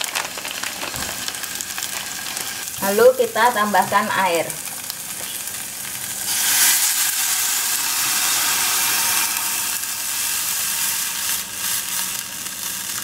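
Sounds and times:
water sizzling in hot oil: 0:00.0 - 0:13.0.

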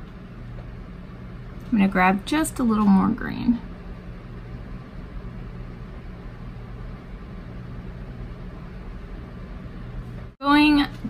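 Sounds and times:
room hum and hiss: 0:00.0 - 0:11.0.

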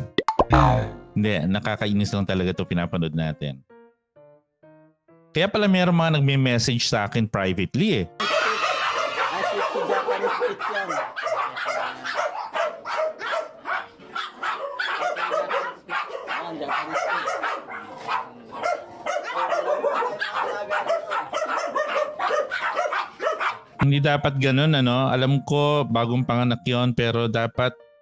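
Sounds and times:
many dogs barking: 0:08.2 - 0:23.8.

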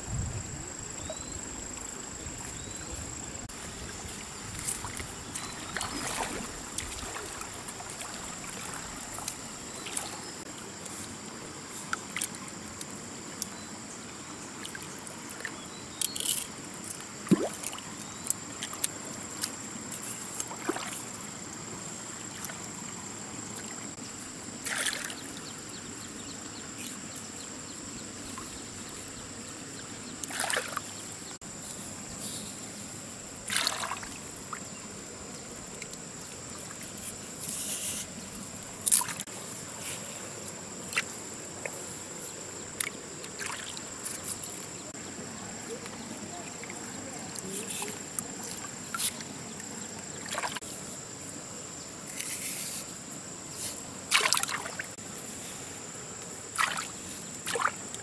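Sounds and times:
water trickling and sloshing: 0:00.3 - 0:52.3, 0:52.9 - 0:58.0
short splashes and knocks: 0:04.6 - 0:10.2, 0:17.2 - 0:17.8, 0:20.4 - 0:21.1, 0:30.2 - 0:30.9, 0:33.5 - 0:34.6, 0:42.8 - 0:43.8, 0:50.1 - 0:50.7, 0:54.1 - 0:55.0, 0:56.6 - 0:58.0.

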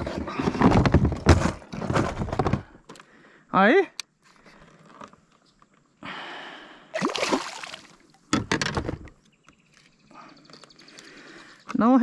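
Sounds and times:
water splashing beside a kayak: 0:07.0 - 0:08.3.

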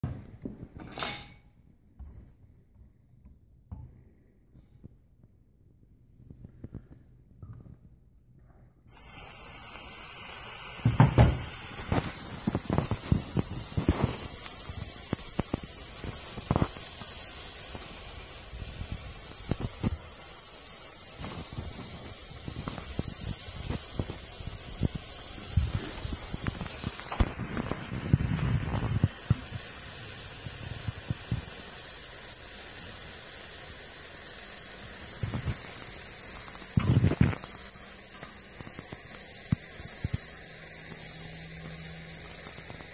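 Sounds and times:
crackling pops: 0:08.9 - 0:42.9
hot metal sizzling in cheese: 0:08.9 - 0:42.9.

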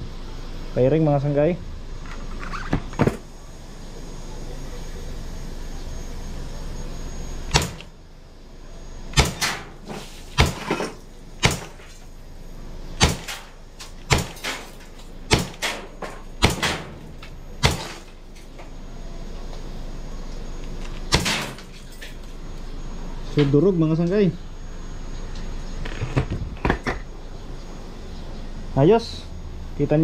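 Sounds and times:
air pistol pops: 0:07.5 - 0:07.9.

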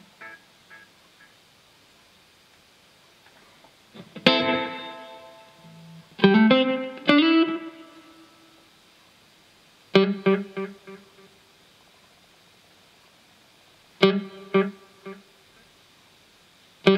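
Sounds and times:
electric guitar chords ringing: 0:00.0 - 0:00.9, 0:04.2 - 0:08.4, 0:10.0 - 0:11.3, 0:14.0 - 0:15.2
guitar note delay repeats: 0:00.0 - 0:01.3, 0:04.2 - 0:08.2, 0:10.0 - 0:11.3, 0:14.0 - 0:15.2.

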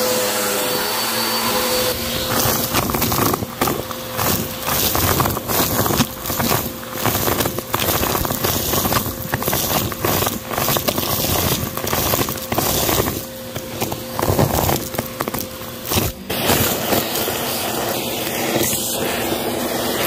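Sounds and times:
vacuum cleaner motor whine: 0:00.0 - 0:20.0
debris crackling up vacuum tube: 0:02.1 - 0:18.8.

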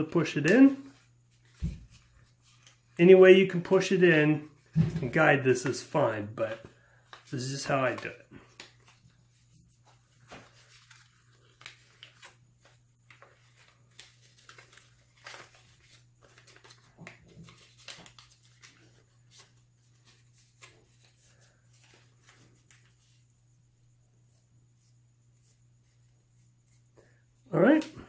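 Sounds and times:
paper crinkling and crackling: 0:07.1 - 0:23.2.

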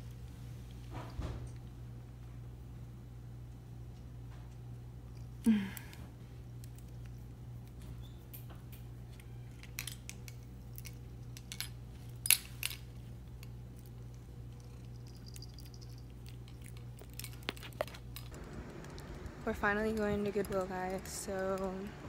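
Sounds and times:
steady low hum: 0:00.0 - 0:22.0
keys clinking on keyring: 0:09.2 - 0:19.2.

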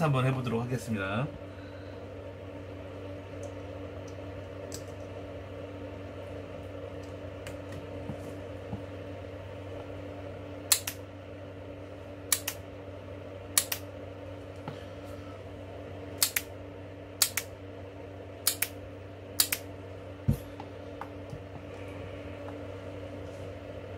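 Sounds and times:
low hum: 0:00.0 - 0:23.9
sharp relay clicks: 0:10.7 - 0:11.0, 0:12.3 - 0:12.6, 0:13.6 - 0:13.9, 0:16.2 - 0:16.5, 0:17.2 - 0:17.5, 0:18.4 - 0:18.8, 0:19.4 - 0:19.7.

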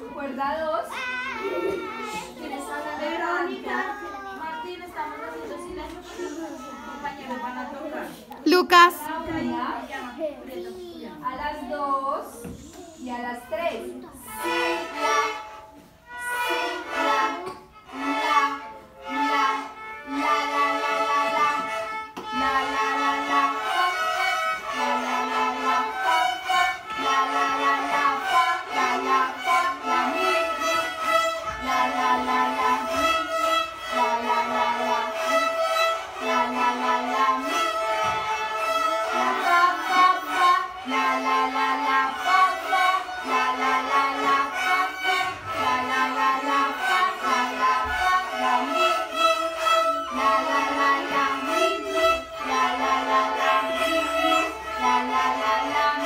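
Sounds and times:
children playing violins: 0:00.0 - 0:56.0.

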